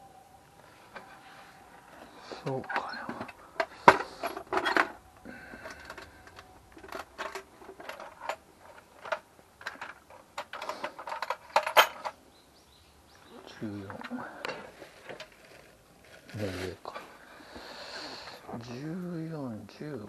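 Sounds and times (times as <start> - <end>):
metal hand tools clattering: 2.5 - 12.2.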